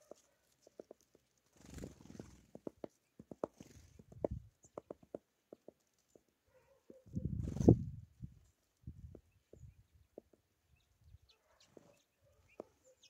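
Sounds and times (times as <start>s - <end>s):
birds pecking on wooden tray: 0.0s - 7.0s, 9.1s - 10.5s.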